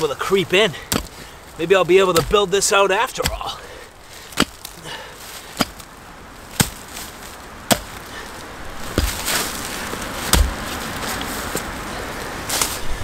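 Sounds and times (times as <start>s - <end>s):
digging tool striking soil: 0.0s - 3.7s, 4.3s - 4.8s, 5.4s - 5.9s, 6.5s - 8.1s, 8.8s - 11.7s.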